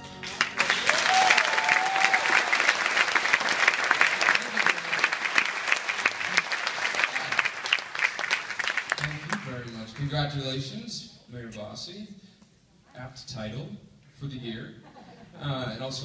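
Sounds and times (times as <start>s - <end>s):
audience applauding: 0.0s - 10.2s.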